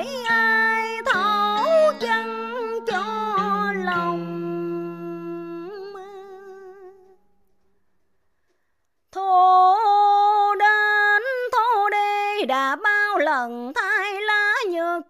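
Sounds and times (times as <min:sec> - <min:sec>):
woman singing with vibrato: 0:00.0 - 0:07.0, 0:09.2 - 0:15.0.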